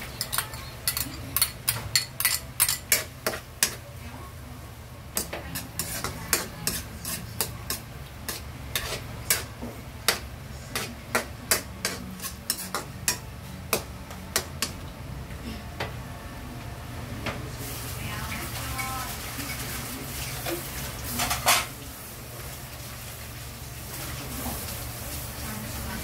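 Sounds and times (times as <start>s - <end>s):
food sauteing in butter: 5.0s - 14.7s, 17.6s - 26.0s
metal spatula scraping wok: 5.2s - 13.8s.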